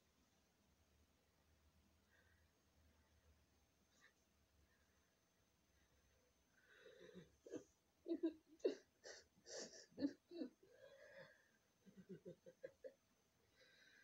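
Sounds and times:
boy sobbing and gasping: 0:08.6 - 0:11.4.

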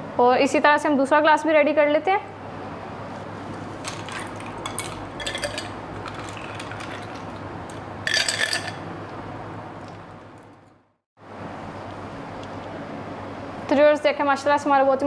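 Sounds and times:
liquid pouring and splashing: 0:03.8 - 0:08.8
ice and ladle clinking on glass: 0:03.8 - 0:08.9.

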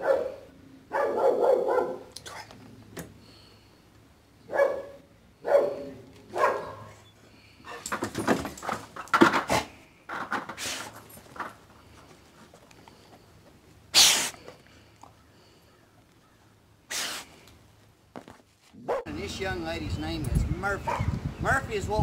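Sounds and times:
dog barking: 0:00.0 - 0:02.1, 0:04.5 - 0:07.0, 0:18.8 - 0:19.2, 0:20.9 - 0:21.1.

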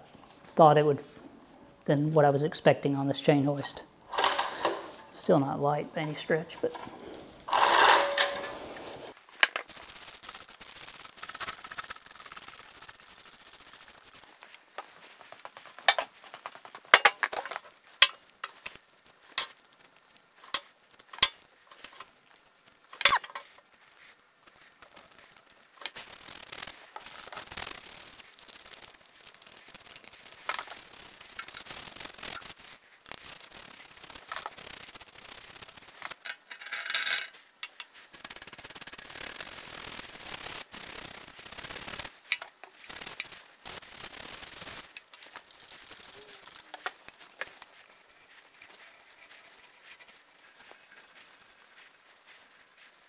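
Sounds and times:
spray bottle squirting: 0:04.1 - 0:05.2, 0:06.0 - 0:14.4, 0:24.8 - 0:36.2, 0:37.7 - 0:47.6
brush scrubbing metal: 0:24.7 - 0:36.2, 0:37.8 - 0:52.0.

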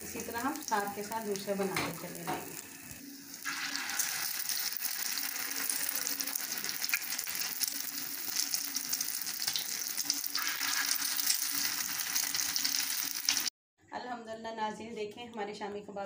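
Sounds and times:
patties sizzling in oil: 0:00.0 - 0:13.5.

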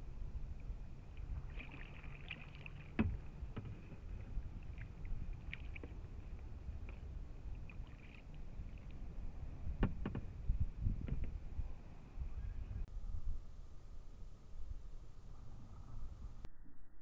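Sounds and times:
low rumble: 0:00.0 - 0:02.2, 0:02.8 - 0:17.0
paddle splashing in water: 0:01.1 - 0:10.4.

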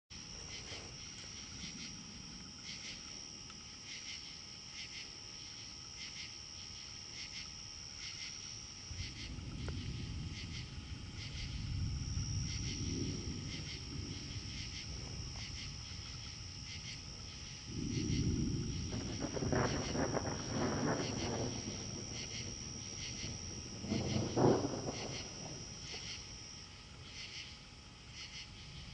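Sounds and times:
night insects trilling: 0:00.1 - 0:28.9
distant thunder rumbling: 0:08.8 - 0:27.0.

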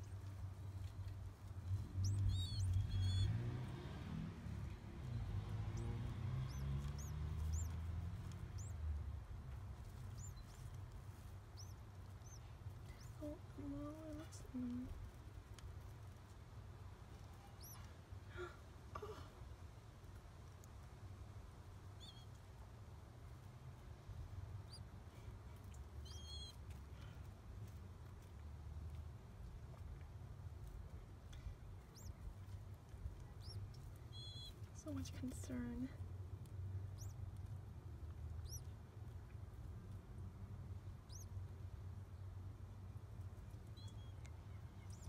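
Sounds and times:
squab squeaky peeps: 0:00.0 - 0:03.4, 0:05.1 - 0:08.8, 0:09.8 - 0:10.8, 0:11.5 - 0:14.4, 0:17.4 - 0:17.9, 0:22.0 - 0:22.3, 0:25.7 - 0:26.7, 0:31.8 - 0:35.9, 0:37.0 - 0:37.2, 0:38.4 - 0:38.7, 0:41.0 - 0:41.3, 0:43.7 - 0:45.0
low rumbling: 0:00.0 - 0:16.1
chick peeping: 0:17.5 - 0:17.9, 0:31.8 - 0:35.9, 0:38.4 - 0:38.7, 0:41.0 - 0:41.3.

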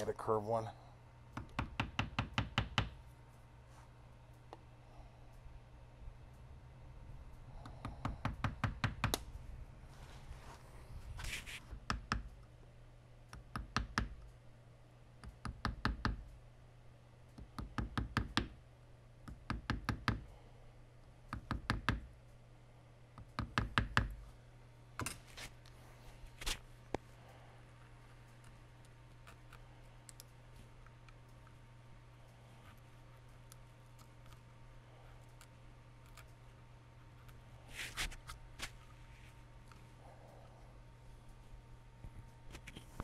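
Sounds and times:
hammer tapping chisel: 0:01.4 - 0:03.0, 0:07.6 - 0:09.2, 0:11.8 - 0:12.3, 0:15.2 - 0:16.3, 0:17.4 - 0:18.6, 0:19.3 - 0:20.3, 0:21.3 - 0:22.1.

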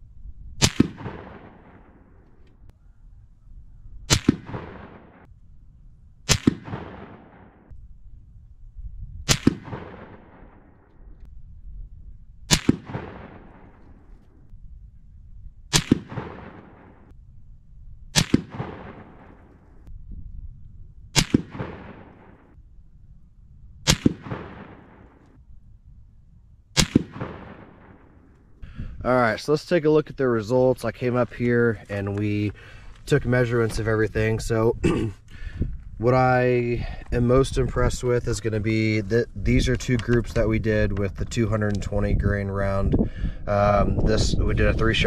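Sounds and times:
rifle shots with echo: 0:00.6 - 0:02.4, 0:04.1 - 0:05.3, 0:06.2 - 0:07.7, 0:09.2 - 0:11.0, 0:12.5 - 0:14.3, 0:15.7 - 0:17.1, 0:18.1 - 0:19.8, 0:21.1 - 0:22.6, 0:23.8 - 0:25.4, 0:26.7 - 0:28.6.

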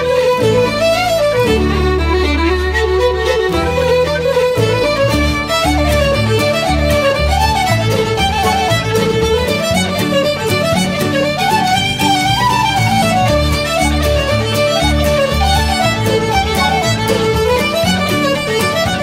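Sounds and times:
fiddle music with beat: 0:00.0 - 0:19.0.

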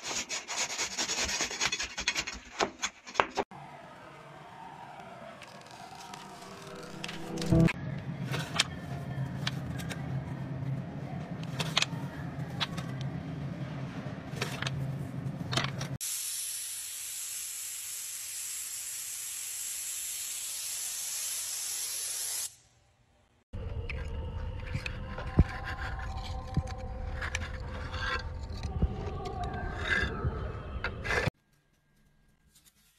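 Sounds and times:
low hum: 0:03.6 - 0:15.6.

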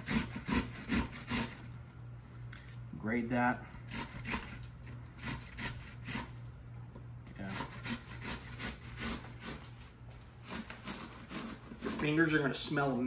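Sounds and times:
onion rasping on grater: 0:00.0 - 0:01.7, 0:03.7 - 0:06.4, 0:07.4 - 0:09.7, 0:10.4 - 0:12.2.

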